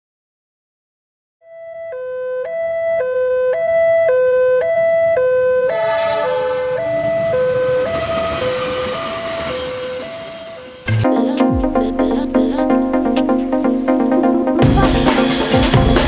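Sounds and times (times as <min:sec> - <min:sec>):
two-tone level crossing alarm: 0:01.4 - 0:11.0
diesel locomotive rumble: 0:05.5 - 0:11.0.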